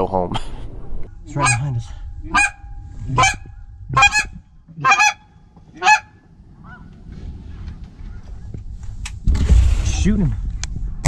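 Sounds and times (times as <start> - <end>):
goose honking: 1.3 - 7.0.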